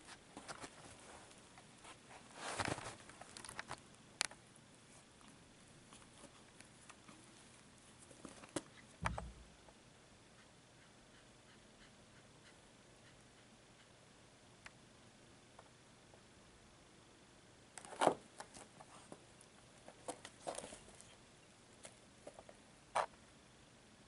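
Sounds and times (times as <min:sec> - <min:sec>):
soft rustles and scuffs on carpet: 0:00.0 - 0:03.1.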